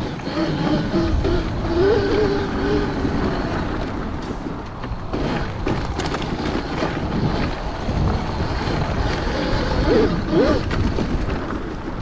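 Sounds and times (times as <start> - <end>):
knobby tyres rolling over dirt: 0.0 - 12.0
sharp clicks and rattles: 0.0 - 12.0
wind buffeting: 0.0 - 12.0.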